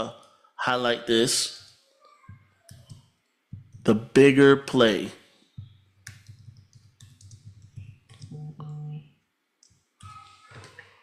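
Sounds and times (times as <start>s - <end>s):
keyboard keystrokes clicking: 6.0s - 8.4s.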